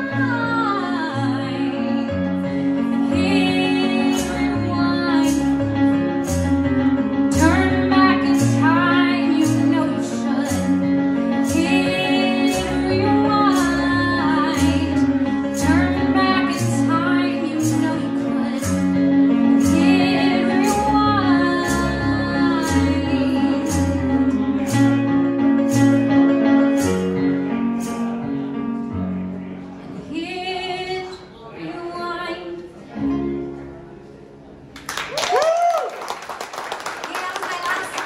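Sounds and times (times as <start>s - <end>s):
woman singing: 0.0s - 5.6s, 7.3s - 24.0s
electric keyboard: 0.0s - 30.1s.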